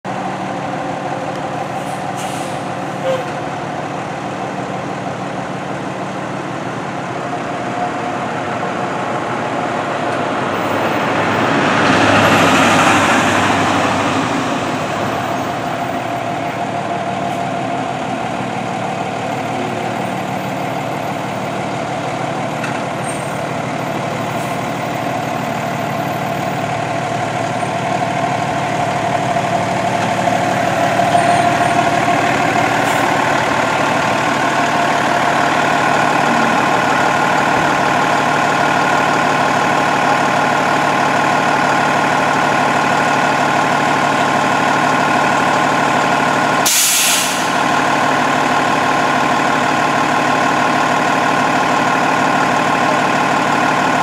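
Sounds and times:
diesel engine humming: 0.1 - 54.0
rushing air: 46.6 - 47.6.

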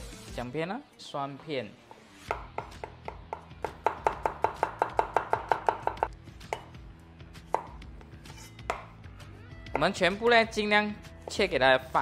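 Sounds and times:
cleaver chopping on cutting board: 2.3 - 6.8, 7.5 - 9.0.

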